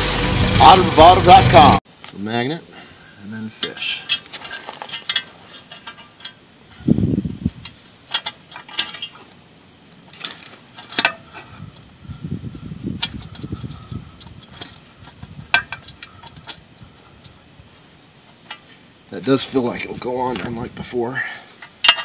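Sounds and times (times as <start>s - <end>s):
metal plate clicks and knocks: 10.1s - 11.4s, 14.2s - 16.6s, 21.6s - 22.0s.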